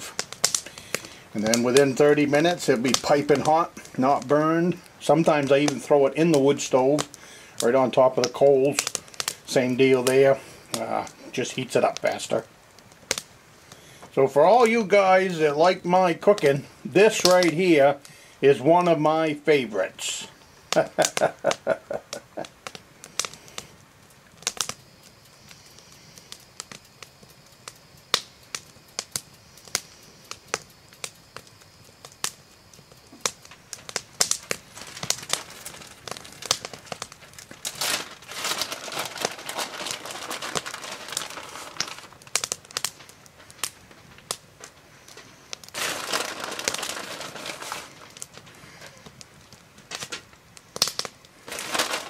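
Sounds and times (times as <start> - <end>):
plastic bag crinkling: 34.6 - 43.1, 45.7 - 49.1, 51.4 - 52.0.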